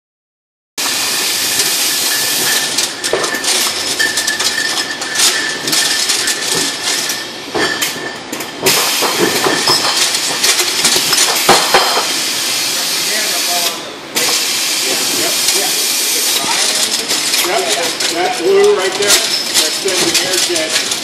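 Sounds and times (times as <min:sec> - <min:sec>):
hiss of gas and air: 0:00.8 - 0:02.7, 0:08.7 - 0:09.5, 0:11.2 - 0:16.4
glass bottles clinking: 0:00.8 - 0:12.5, 0:14.1 - 0:21.0.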